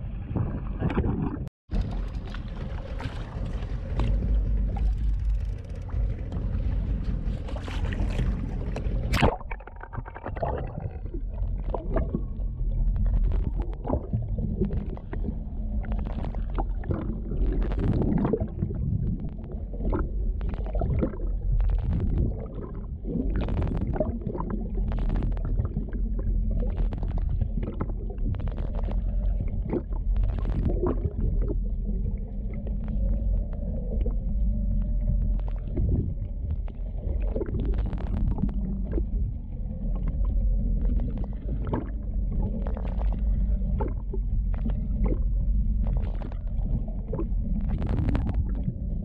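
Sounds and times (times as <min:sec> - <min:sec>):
low underwater rumble: 0:00.0 - 0:49.0
water gurgling and sloshing: 0:00.0 - 0:49.0.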